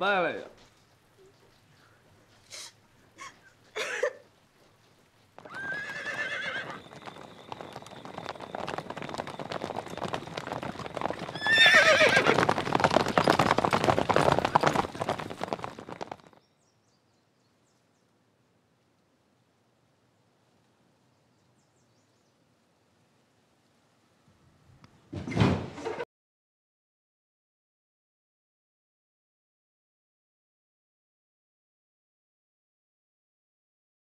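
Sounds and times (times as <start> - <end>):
horse hooves galloping: 0.3 - 16.7
horse whinnying: 5.4 - 16.4.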